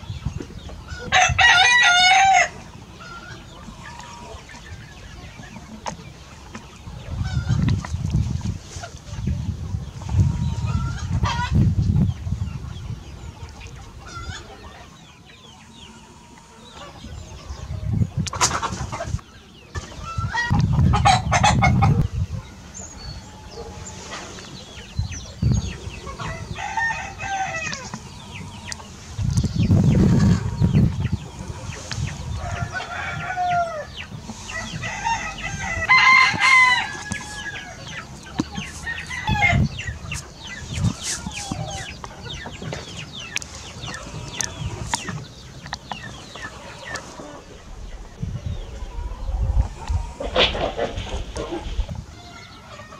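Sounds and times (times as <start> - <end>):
chickens clucking and calling: 0.0 - 52.9
rooster crowing: 1.1 - 2.6, 26.1 - 28.4, 32.4 - 33.9, 34.5 - 37.9
low rumble bursts: 46.3 - 52.0.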